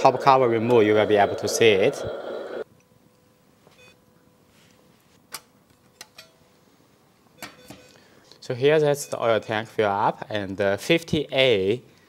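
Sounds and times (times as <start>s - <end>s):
faint steady electronic tone: 0.0s - 2.6s.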